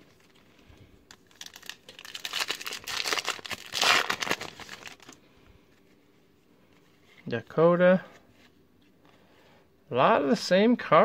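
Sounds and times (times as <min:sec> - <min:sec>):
foil wrapper tearing and crinkling: 0:01.1 - 0:05.2.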